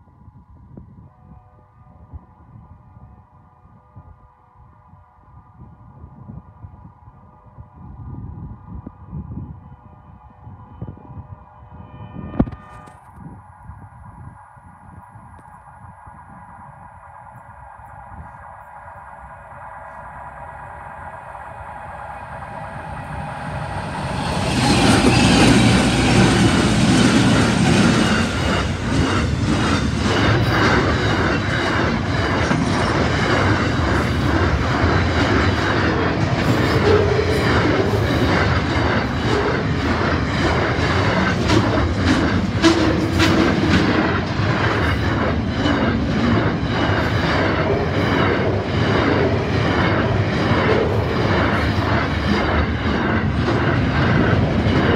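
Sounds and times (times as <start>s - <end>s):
diesel locomotive engine drone: 0.0s - 54.9s
freight wagons rumbling past: 22.5s - 54.9s
wheels clickety-clack: 24.5s - 54.9s.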